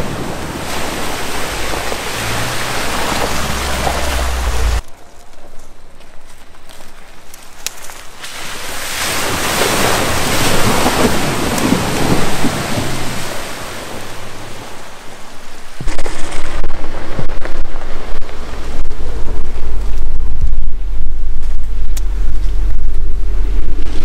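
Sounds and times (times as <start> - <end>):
vehicle driving through mud: 0.0 - 4.8, 8.7 - 15.0
wind buffeting microphone: 9.2 - 14.8, 15.8 - 24.0.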